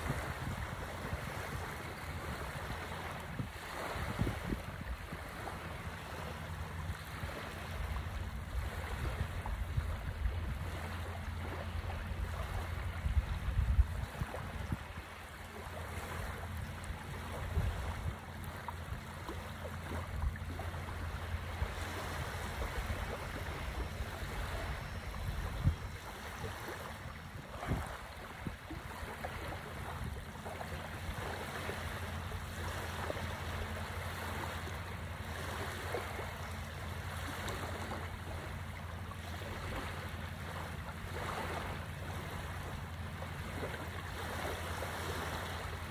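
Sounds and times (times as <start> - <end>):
wind rumbling on microphone: 0.0 - 34.4
waves lapping on shore: 0.0 - 45.9.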